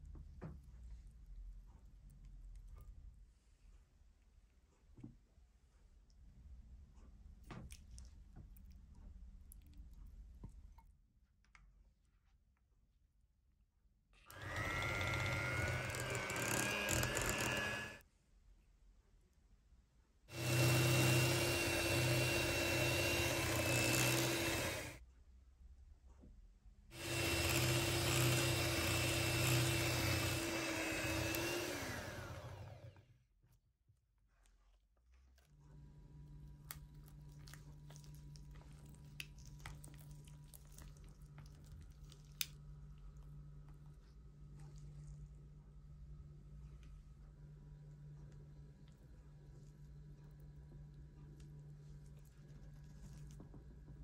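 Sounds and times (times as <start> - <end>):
electric hand mixer whining: 14.3 - 18.0, 20.3 - 25.0, 27.0 - 33.0.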